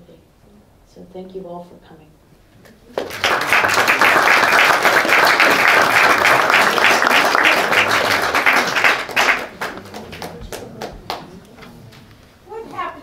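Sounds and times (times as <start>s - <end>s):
audience applauding: 2.9s - 11.4s.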